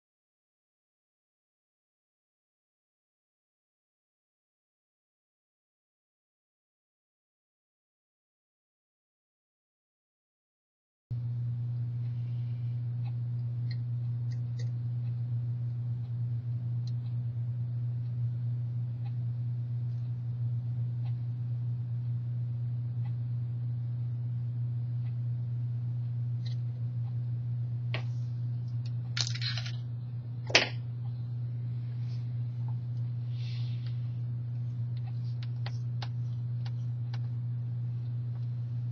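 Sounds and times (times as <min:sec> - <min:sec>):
steady low hum: 0:11.1 - 0:38.9
soft brushing: 0:31.7 - 0:37.0.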